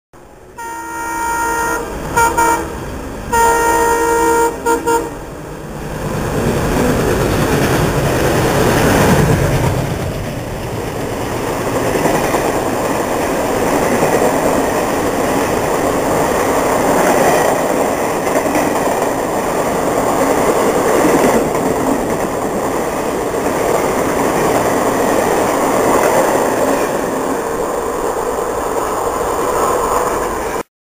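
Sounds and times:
diesel locomotive engine passing: 0:00.2 - 0:30.6
train coaches rolling past: 0:00.2 - 0:30.7
locomotive horn blasts: 0:00.5 - 0:05.2.

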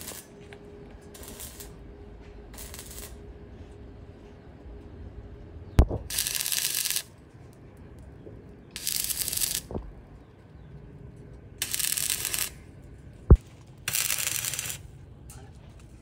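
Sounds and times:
welding arc crackling: 0:00.0 - 0:00.3, 0:01.1 - 0:01.8, 0:02.5 - 0:03.2, 0:05.8 - 0:07.1, 0:08.7 - 0:09.9, 0:11.6 - 0:12.6, 0:13.3 - 0:14.9.

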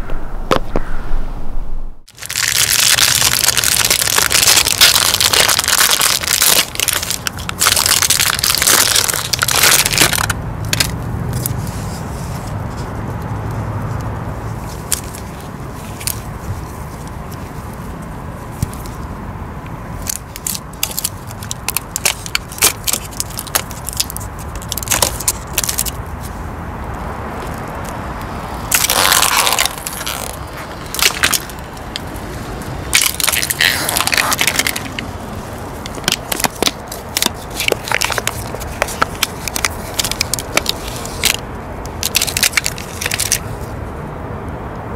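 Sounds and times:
tyre crushing crunchy objects: 0:02.1 - 0:11.5, 0:20.0 - 0:26.0, 0:28.6 - 0:43.5.

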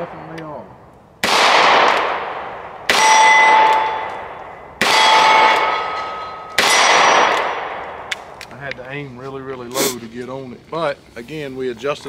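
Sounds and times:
revolver gunshots echoing: 0:01.2 - 0:08.4
short metallic ring: 0:05.0 - 0:07.2.

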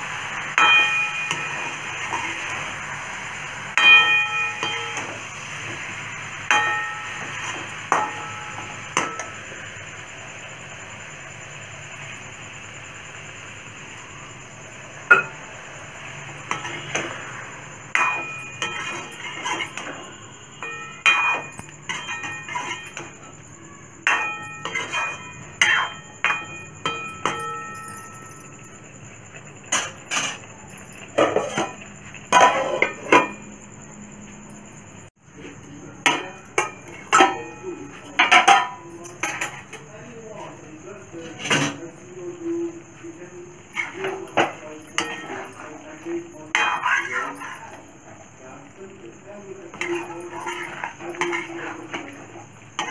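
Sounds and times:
frying hiss: 0:00.0 - 0:52.9
metal spatula knocking on pan: 0:00.6 - 0:01.8, 0:03.8 - 0:05.8, 0:06.5 - 0:09.5, 0:15.1 - 0:15.4, 0:17.9 - 0:23.3, 0:24.0 - 0:28.2, 0:36.0 - 0:39.8.

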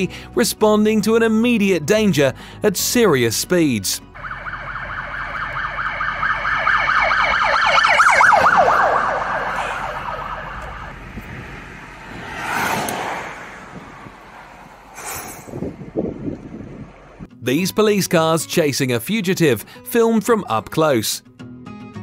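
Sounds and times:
police siren yelping: 0:04.2 - 0:11.0
rushing noise: 0:08.2 - 0:17.2.

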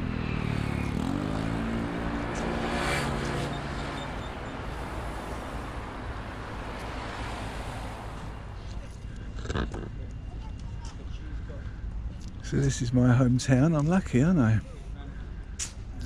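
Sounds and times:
vehicle engine passing by: 0:00.0 - 0:05.7.

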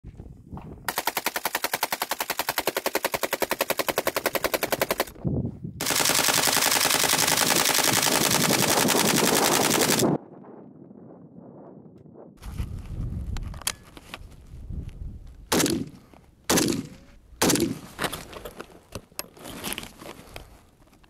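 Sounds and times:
assault rifle automatic fire: 0:00.9 - 0:05.1, 0:05.8 - 0:10.1, 0:15.5 - 0:15.9, 0:16.5 - 0:17.8.

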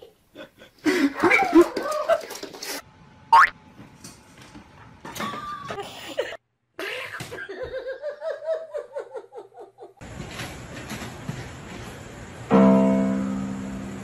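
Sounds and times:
electronic keyboard sustained tone: 0:12.5 - 0:14.0.

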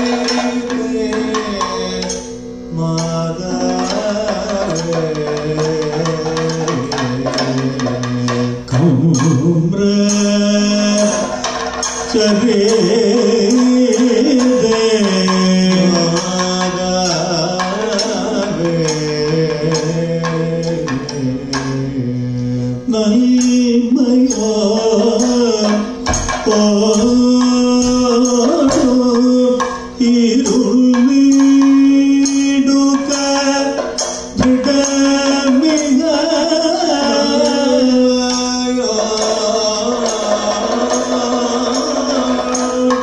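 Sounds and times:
drums: 0:00.0 - 0:22.2, 0:22.8 - 0:43.0
person singing slow melody: 0:12.2 - 0:43.0.

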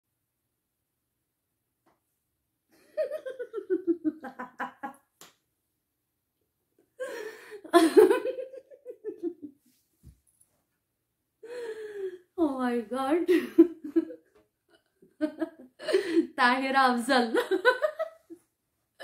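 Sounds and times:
woman laughing: 0:02.8 - 0:05.0, 0:07.0 - 0:09.6, 0:13.3 - 0:14.2, 0:15.2 - 0:16.4.

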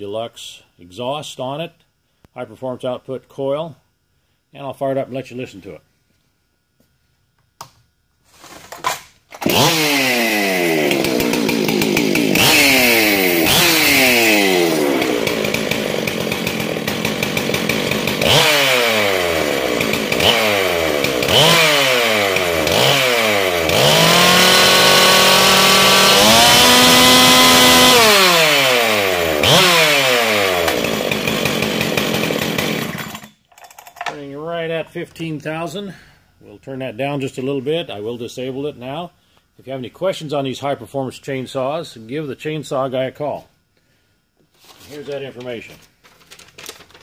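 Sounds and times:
chainsaw revving: 0:09.4 - 0:33.4.

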